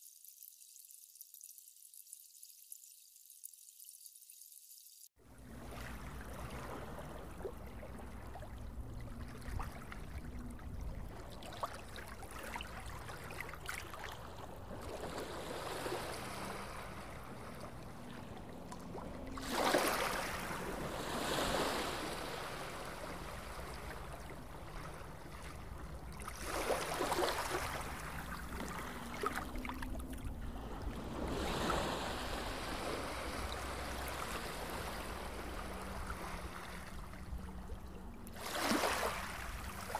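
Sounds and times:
sea water sloshing and lapping: 0:05.2 - 0:39.9
waves washing past: 0:11.1 - 0:39.9.

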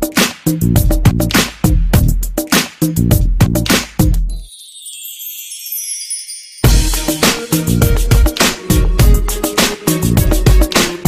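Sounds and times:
deep bass line: 0:00.6 - 0:02.3, 0:02.9 - 0:04.3, 0:06.7 - 0:09.4
drum hits: 0:06.7 - 0:11.0.

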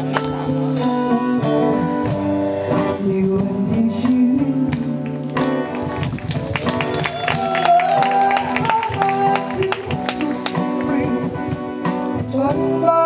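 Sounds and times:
drums: 0:00.0 - 0:13.0
electric guitar: 0:00.0 - 0:13.0
live band playing: 0:00.0 - 0:13.0.

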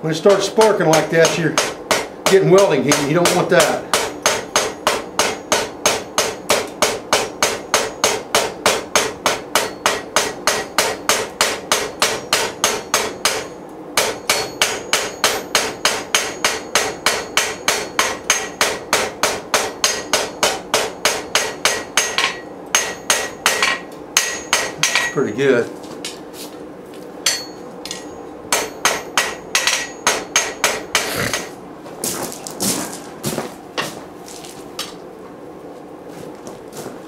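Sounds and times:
hammer striking steel on anvil: 0:00.6 - 0:25.4, 0:27.2 - 0:31.5.

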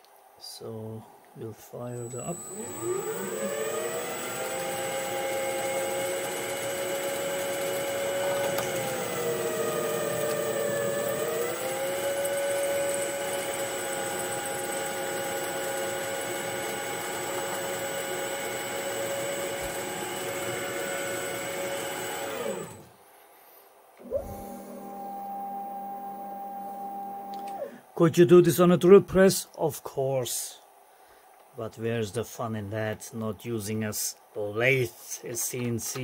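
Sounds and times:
lathe spindle whine: 0:01.8 - 0:22.9, 0:24.0 - 0:27.7.

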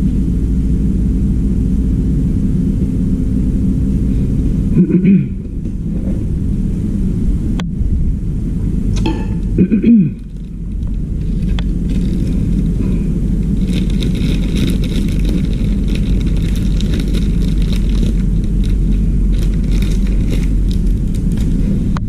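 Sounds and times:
low rumble: 0:00.0 - 0:22.0
small objects clicking and rattling: 0:10.2 - 0:21.7.

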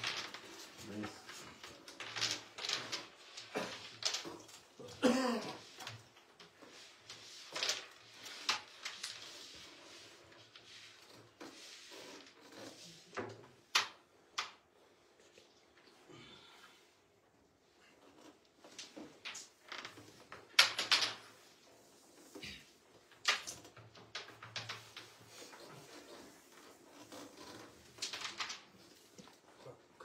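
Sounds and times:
carrom pieces clacking: 0:01.4 - 0:04.7, 0:18.6 - 0:21.6, 0:23.0 - 0:29.4.

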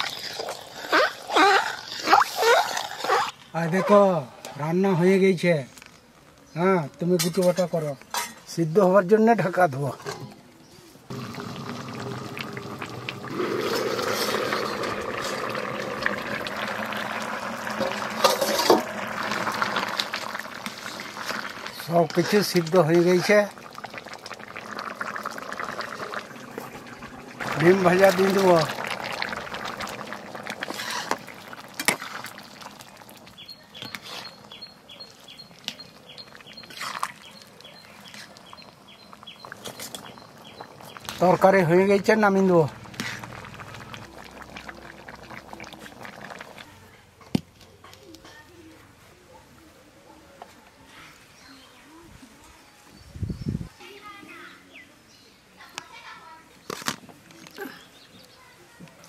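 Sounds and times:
curry bubbling: 0:00.0 - 0:03.4, 0:11.1 - 0:46.9
metal spatula scraping a pan: 0:17.8 - 0:18.9, 0:30.6 - 0:31.2
bird chirping: 0:33.3 - 0:41.2.

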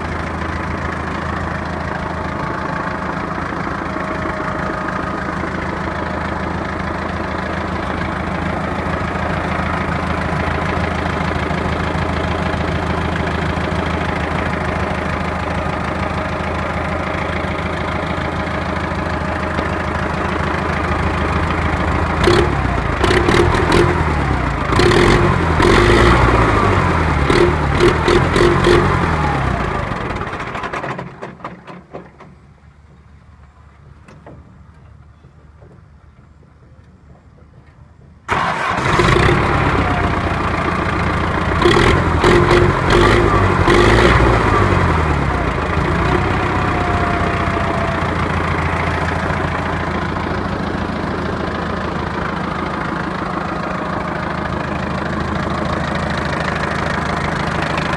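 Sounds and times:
diesel tractor engine: 0:00.0 - 0:57.9
sharp clattering knocks: 0:30.4 - 0:32.5.

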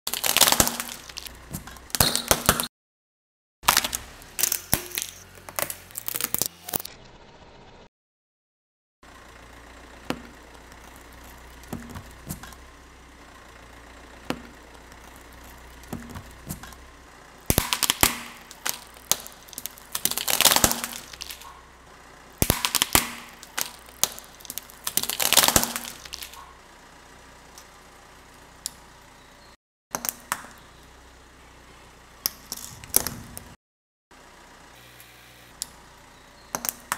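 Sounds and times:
plastic toy cracking under tyre: 0:00.1 - 0:02.7, 0:03.6 - 0:06.9, 0:17.5 - 0:21.5, 0:22.4 - 0:26.4
car engine idling: 0:00.2 - 0:02.5, 0:09.0 - 0:29.6, 0:30.2 - 0:36.9.

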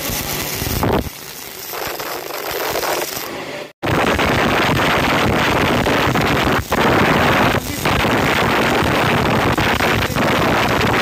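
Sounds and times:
arc welding hiss: 0:00.0 - 0:11.0.

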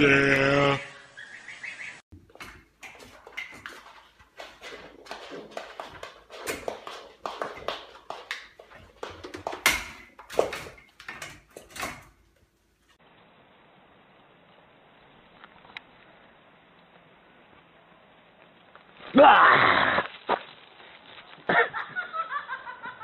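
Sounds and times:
metal gate knocking and rattling: 0:09.1 - 0:12.2.

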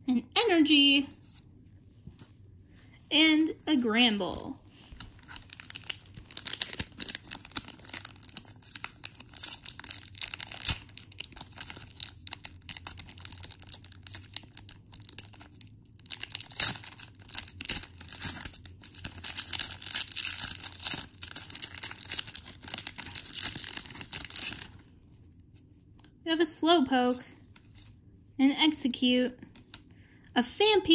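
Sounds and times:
foil pack crinkling and tearing: 0:04.9 - 0:24.9.

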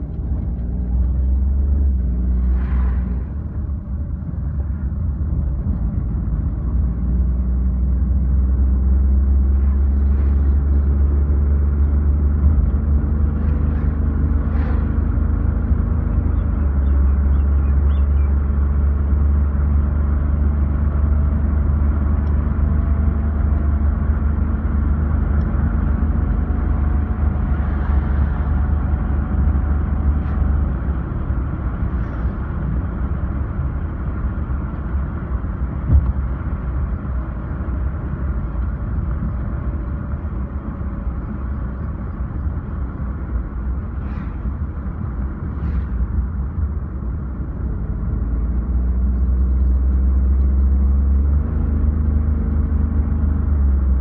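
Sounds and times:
car engine drone: 0:00.0 - 0:54.0
road rumble: 0:00.0 - 0:54.0.

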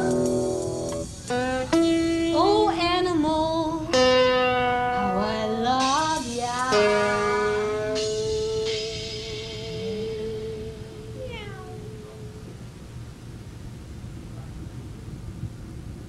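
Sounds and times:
guitar music: 0:00.0 - 0:12.6.

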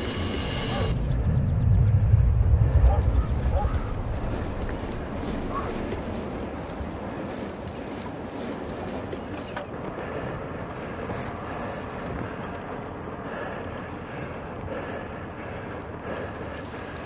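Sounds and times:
low rumble: 0:00.0 - 0:09.2
rushing wind: 0:00.0 - 0:17.0.

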